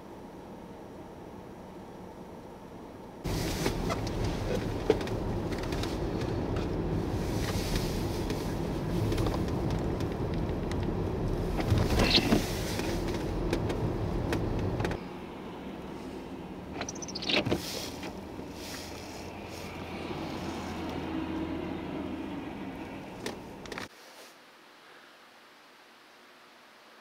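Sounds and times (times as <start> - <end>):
car road and engine rumble: 0.0 - 23.9
windshield wiper sweeping: 3.3 - 15.0, 16.8 - 22.0.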